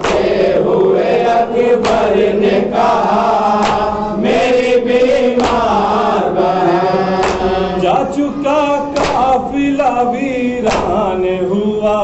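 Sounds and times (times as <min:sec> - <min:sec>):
hands slapping chests: 0:00.0 - 0:00.5, 0:01.8 - 0:02.2, 0:03.6 - 0:04.0, 0:05.4 - 0:05.9, 0:07.2 - 0:07.8, 0:08.9 - 0:09.4, 0:10.7 - 0:11.0
men singing a lament: 0:00.0 - 0:12.0.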